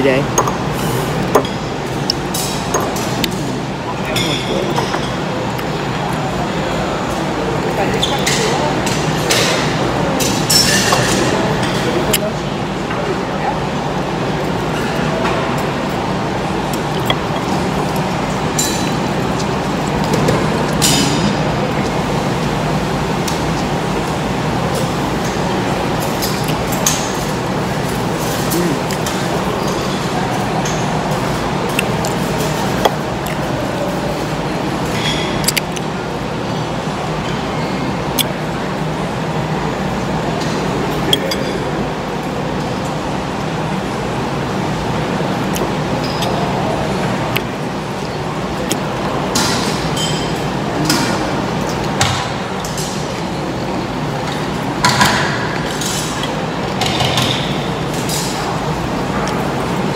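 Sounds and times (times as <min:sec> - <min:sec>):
background hum and hiss: 0:00.0 - 0:59.9
cutlery clinking on plates: 0:04.1 - 0:05.2, 0:08.0 - 0:12.0.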